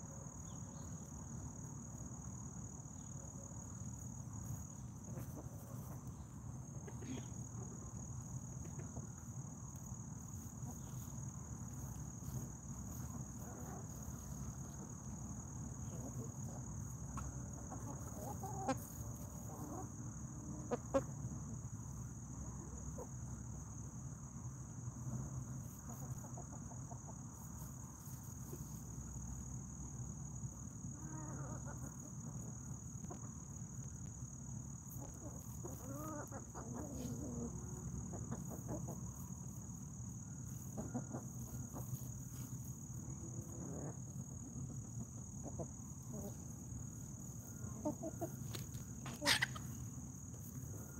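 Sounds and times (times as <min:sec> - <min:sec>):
high insect trill: 0:00.0 - 0:50.9
hens clucking softly: 0:05.0 - 0:21.4, 0:22.4 - 0:23.4, 0:25.1 - 0:29.1, 0:30.8 - 0:33.9, 0:34.8 - 0:50.9.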